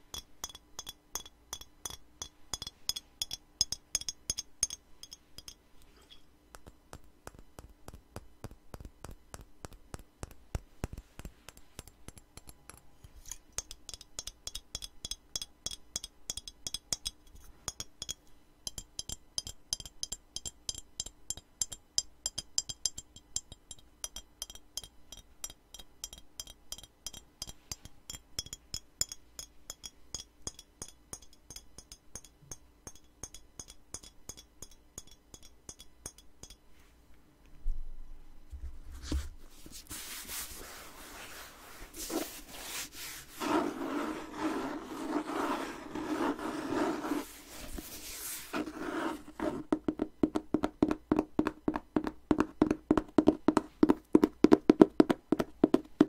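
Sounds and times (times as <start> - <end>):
fingers tapping glass bottles: 0.0 - 7.7, 11.3 - 36.6.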